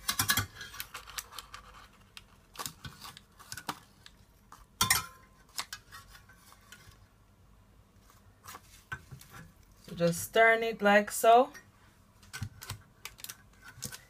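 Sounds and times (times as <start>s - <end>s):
spatula clinking on wire rack: 4.8s - 5.2s.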